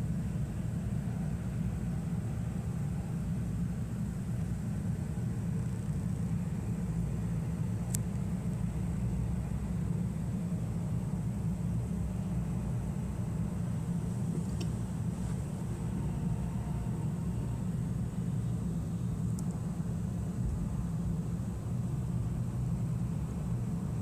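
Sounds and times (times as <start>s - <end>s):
low background rumble: 0.0s - 24.0s
faint click: 7.9s - 8.2s, 14.4s - 14.8s, 19.3s - 19.6s.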